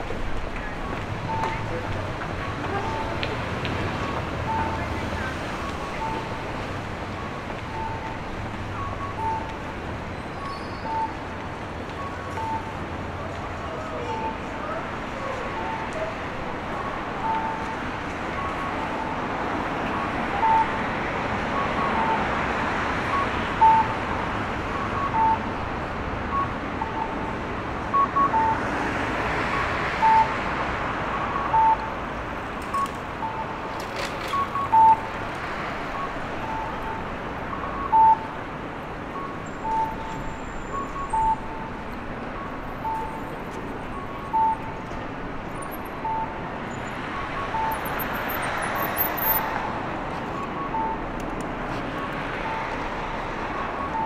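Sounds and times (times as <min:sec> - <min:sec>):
city traffic noise: 0:00.0 - 0:54.0
crossing signal two-note beeps: 0:34.4 - 0:35.1, 0:39.1 - 0:43.2, 0:43.9 - 0:44.8.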